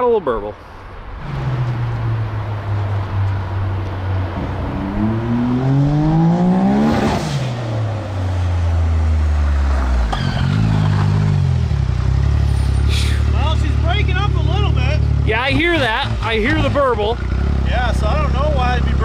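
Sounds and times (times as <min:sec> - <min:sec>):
engine revving and idling: 0:04.4 - 0:08.1, 0:09.8 - 0:19.0.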